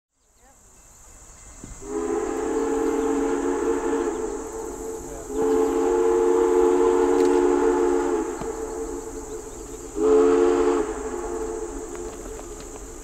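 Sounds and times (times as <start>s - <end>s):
steam locomotive whistle: 1.8s - 13.0s.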